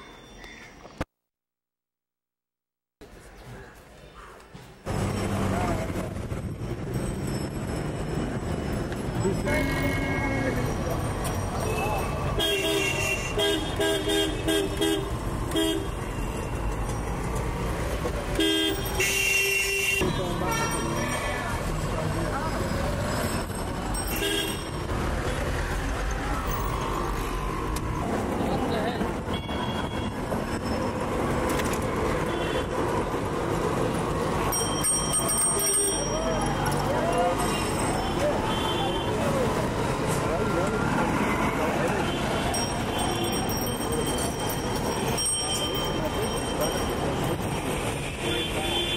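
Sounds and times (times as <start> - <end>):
high ringing tone: 0.0 - 0.8
traffic rumble: 3.0 - 48.9
vehicle horns honking: 9.4 - 10.6, 12.4 - 16.0, 18.4 - 21.2, 48.0 - 48.9.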